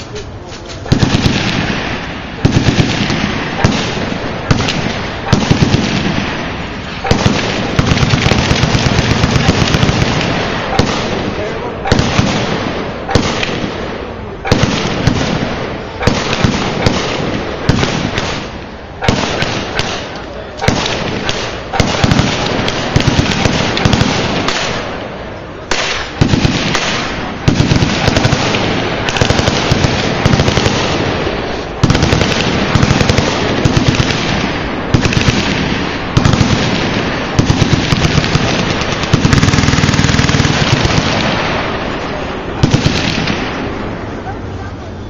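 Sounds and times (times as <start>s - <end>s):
machine gun bursts: 37.4s - 41.4s.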